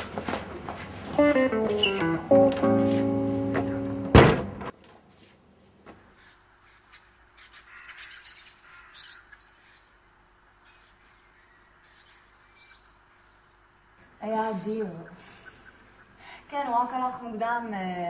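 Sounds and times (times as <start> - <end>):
plucked guitar music: 1.2 - 4.7
loud hit: 3.6 - 4.7.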